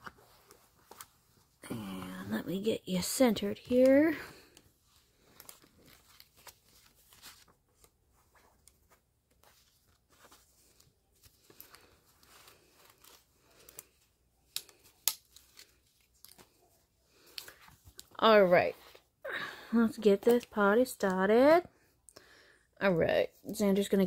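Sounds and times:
banknotes rustling: 0.0 - 19.0.

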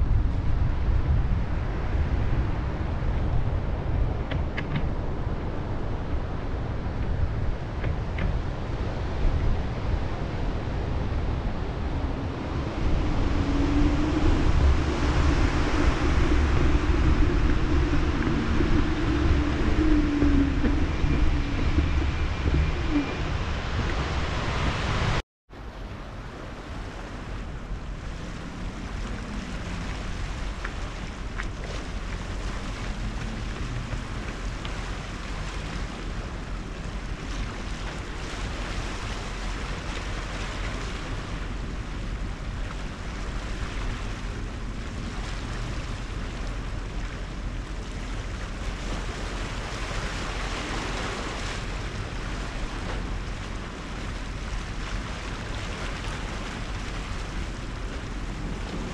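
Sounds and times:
wind rumbling on microphone: 0.0 - 58.9
riding noise: 12.5 - 25.2
sea water washing against rocks: 27.9 - 58.9.

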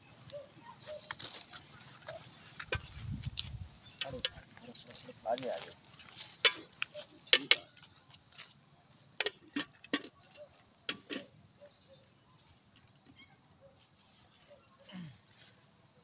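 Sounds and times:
faint bird chirps: 0.0 - 2.5, 10.2 - 15.2.

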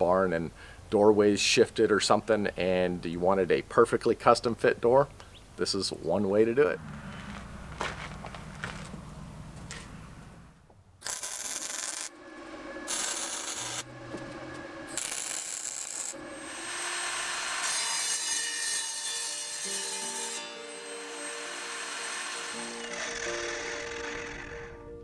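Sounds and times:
welder arc crackle: 11.0 - 12.2, 12.9 - 16.2
music: 18.9 - 25.0.

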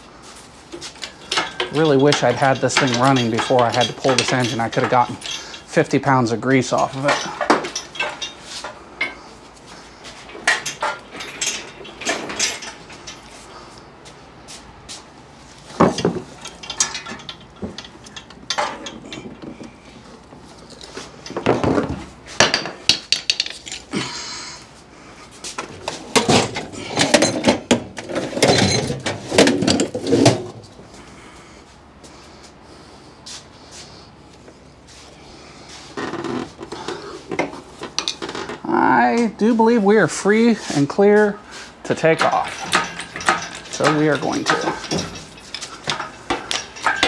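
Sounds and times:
tools and metal hardware clinking: 0.7 - 13.9, 15.6 - 24.2, 25.5 - 30.7, 36.0 - 38.6, 40.2 - 47.0.

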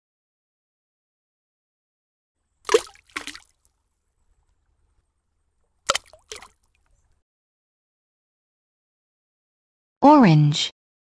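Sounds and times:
cartoon wet splashes: 2.7 - 3.7, 5.9 - 6.7.

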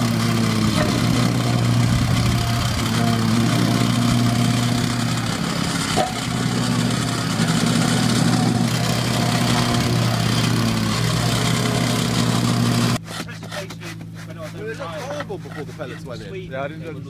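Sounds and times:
plate compactor engine running: 0.0 - 13.0.

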